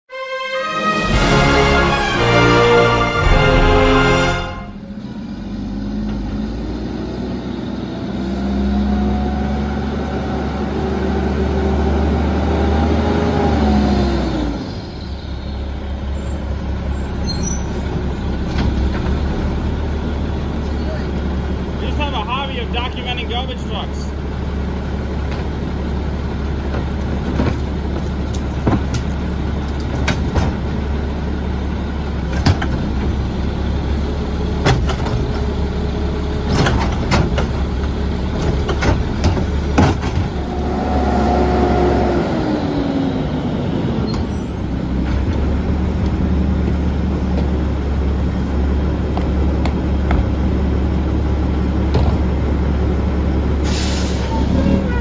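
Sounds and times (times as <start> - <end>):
diesel engine idling: 14.5 - 44.0, 44.9 - 55.0
trash carts knocking and banging: 26.5 - 31.1, 32.1 - 33.4, 34.4 - 40.7, 49.0 - 50.9, 51.7 - 52.8
falling whine: 40.3 - 43.3.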